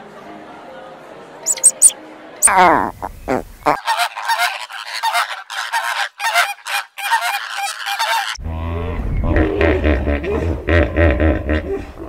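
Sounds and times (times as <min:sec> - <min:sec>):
flamingos honking: 0:03.7 - 0:08.4.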